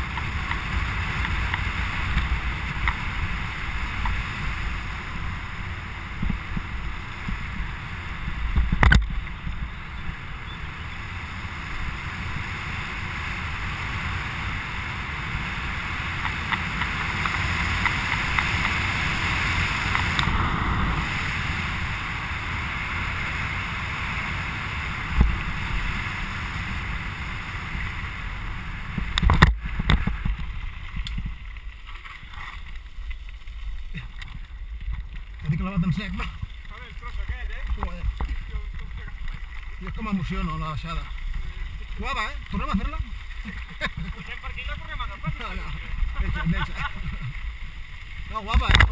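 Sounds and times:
wind buffeting microphone: 0.0 - 31.5
tyres rumbling on road: 0.0 - 48.9.

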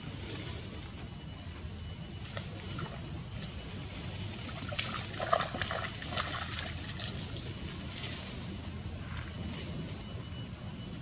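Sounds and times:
high insect drone: 0.0 - 11.0
splashing in shallow muddy water: 2.2 - 8.2.

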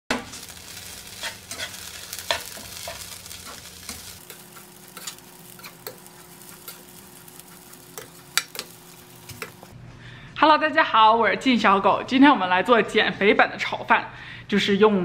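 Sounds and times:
spatula scraping and tapping pan: 0.1 - 9.7
food sizzling in frying pan: 0.1 - 9.8.

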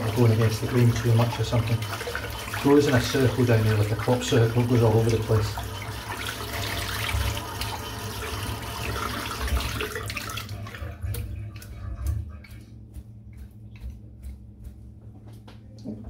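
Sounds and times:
tap water running into sink: 0.0 - 11.7.

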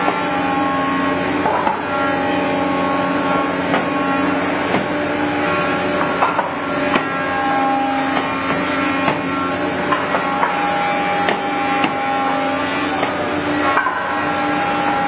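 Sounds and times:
thickness planer humming: 0.0 - 15.0
wooden knocks of boards: 3.7 - 3.9, 4.7 - 4.9, 8.1 - 9.3.

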